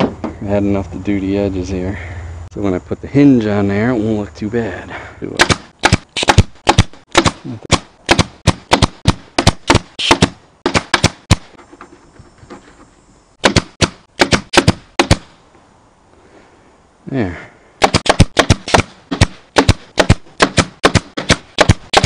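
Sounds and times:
staple gun firing: 0:05.4 - 0:11.4.

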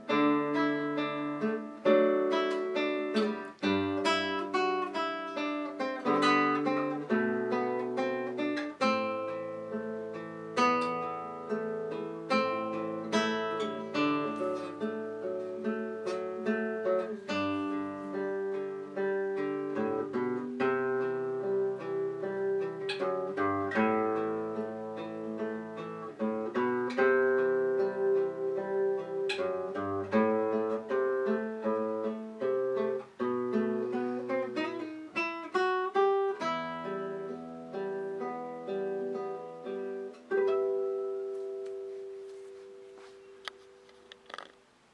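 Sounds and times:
fingerstyle classical guitar: 0:00.0 - 0:44.9.

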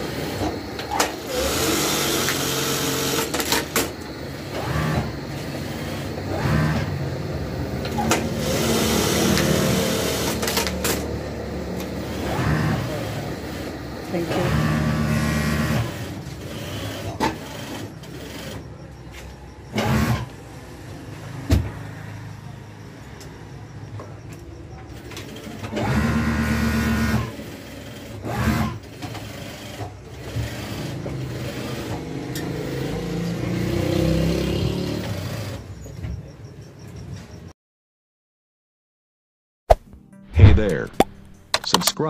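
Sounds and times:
sewing machines stitching: 0:00.0 - 0:07.1, 0:07.7 - 0:18.8, 0:19.7 - 0:20.3, 0:24.9 - 0:35.7
shop clatter: 0:00.0 - 0:22.1, 0:23.0 - 0:33.3, 0:34.0 - 0:37.5, 0:40.3 - 0:42.0.

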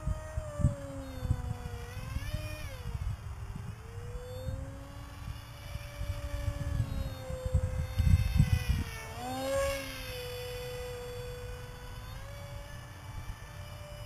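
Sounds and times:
model airplane motor whining: 0:00.0 - 0:14.0
wind rumbling on microphone: 0:00.0 - 0:14.0.

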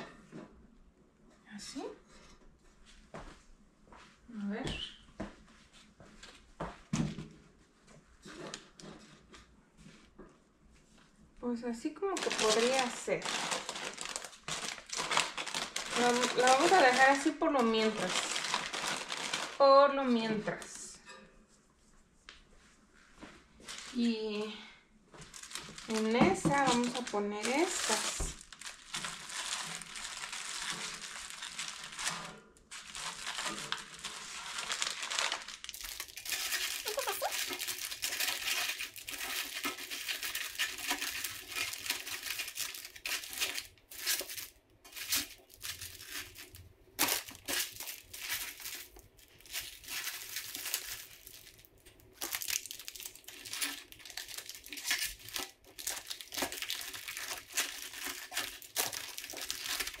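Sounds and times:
plastic wrappers crinkling: 0:12.0 - 0:20.8, 0:23.6 - 0:24.5, 0:25.1 - 1:00.0.

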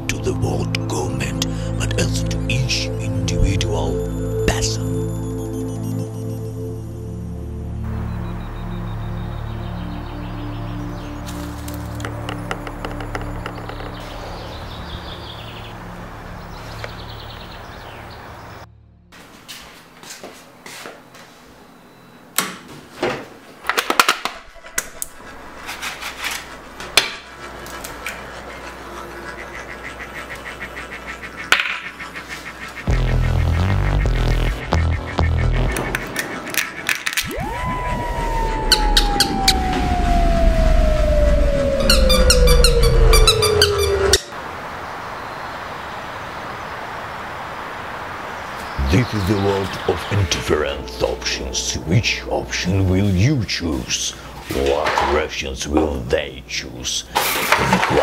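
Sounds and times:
eggshell cracking: 0:11.6 - 0:14.0
low bass layer: 0:32.9 - 0:36.1, 0:37.2 - 0:44.2
slowly falling tone: 0:37.2 - 0:45.8.

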